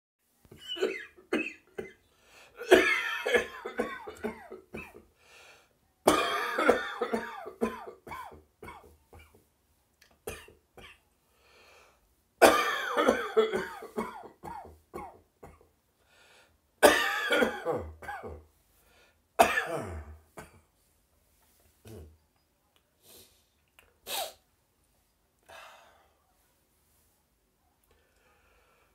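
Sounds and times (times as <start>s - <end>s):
person coughing harshly: 0.6s - 2.0s, 2.6s - 5.0s, 6.1s - 9.4s, 12.4s - 15.6s, 16.8s - 18.4s, 19.4s - 20.6s.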